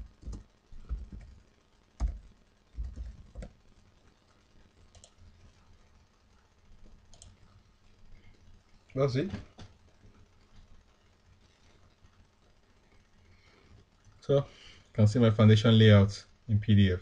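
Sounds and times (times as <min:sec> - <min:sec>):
typing on computer keyboard: 0:00.1 - 0:01.4, 0:02.0 - 0:03.6, 0:04.9 - 0:05.2, 0:07.1 - 0:07.4.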